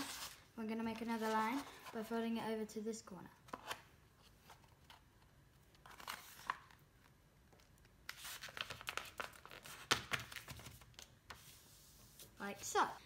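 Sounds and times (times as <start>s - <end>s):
paper folding and crinkling: 0.0s - 2.1s, 5.6s - 12.4s.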